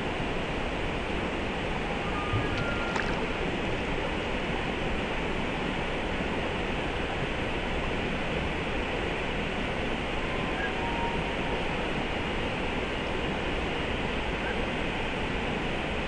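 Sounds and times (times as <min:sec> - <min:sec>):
creek water rushing: 0:01.2 - 0:05.0.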